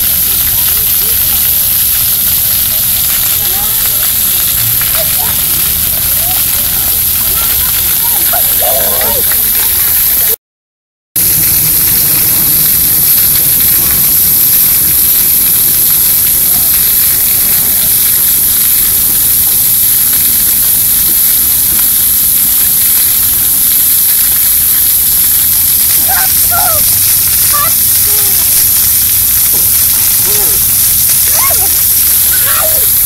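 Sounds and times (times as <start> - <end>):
water jets spraying on concrete: 0.0 - 10.4, 11.2 - 33.0
child's voice: 3.5 - 3.8, 4.9 - 5.4, 6.2 - 9.9, 26.0 - 26.8, 27.4 - 28.3, 31.3 - 32.8.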